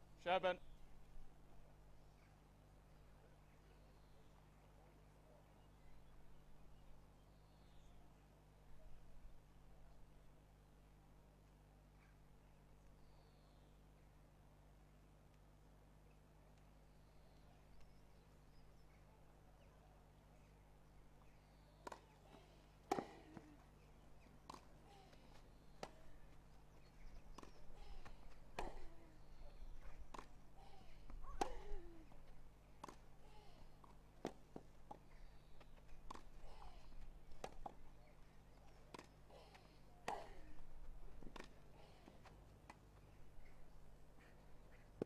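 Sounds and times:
tennis ball bounces: 0:21.8 - 0:26.4, 0:27.0 - 0:37.8.

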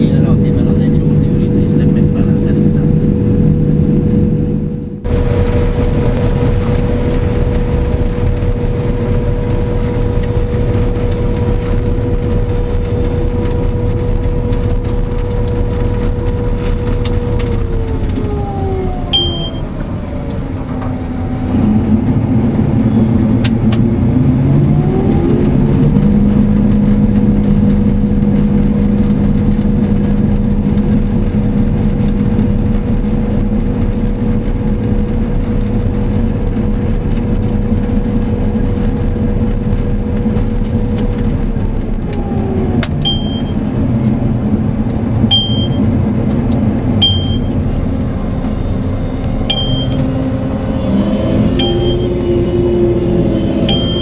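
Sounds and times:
combine harvester running: 0:00.0 - 0:54.0
machine whine: 0:00.0 - 0:54.0
short high beeps: 0:19.1 - 0:19.6, 0:43.0 - 0:43.6, 0:45.3 - 0:45.8, 0:47.0 - 0:47.6, 0:49.5 - 0:50.0, 0:51.6 - 0:52.2, 0:53.7 - 0:54.0.

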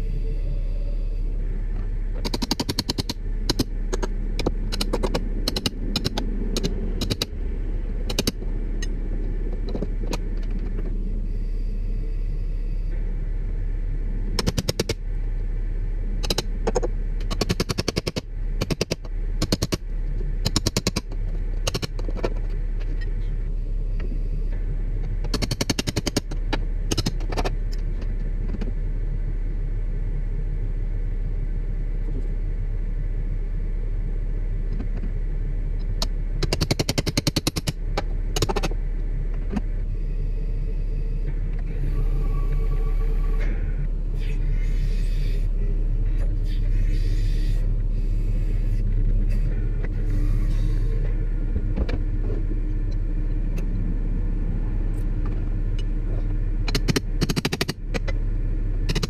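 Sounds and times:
truck engine running: 0:00.0 - 0:59.0
rapid clicking bursts: 0:02.2 - 0:07.3, 0:08.0 - 0:08.4, 0:14.4 - 0:15.0, 0:16.2 - 0:19.8, 0:20.4 - 0:22.0, 0:25.3 - 0:26.3, 0:36.4 - 0:37.8, 0:56.7 - 0:57.8.

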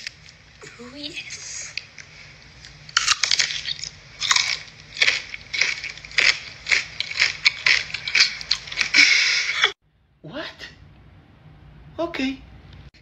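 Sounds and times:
person chewing crisp food: 0:01.6 - 0:09.7.

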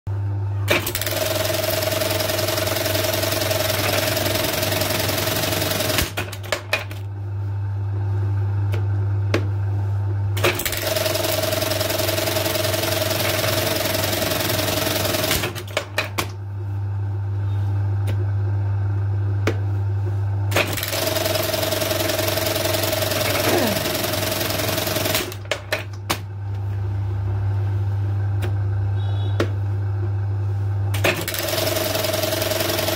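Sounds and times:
sewing machine stitching: 0:00.7 - 0:06.7, 0:10.4 - 0:16.0, 0:20.5 - 0:25.8, 0:31.0 - 0:32.9
motor hum: 0:23.1 - 0:31.5.

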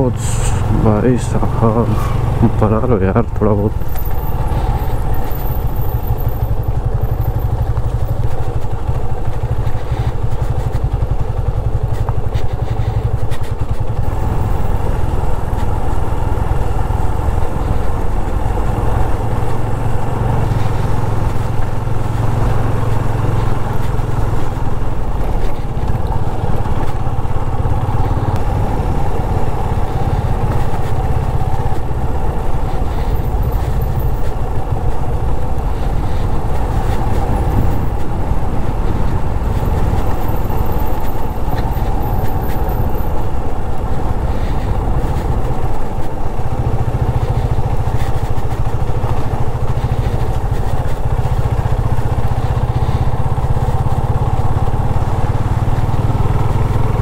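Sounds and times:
motorcycle engine rumbling: 0:00.0 - 0:57.0.

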